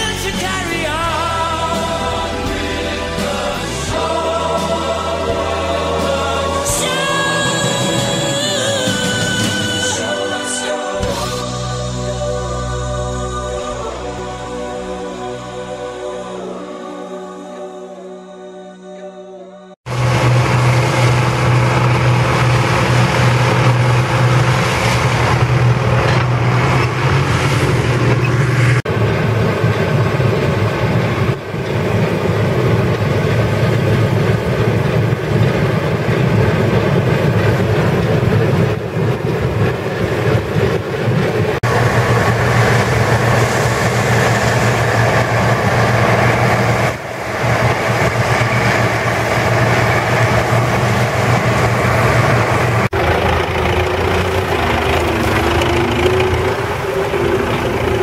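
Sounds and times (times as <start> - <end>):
diesel tractor engine running: 0.0 - 16.3, 19.9 - 58.0
combine harvester mechanical din: 19.9 - 58.0.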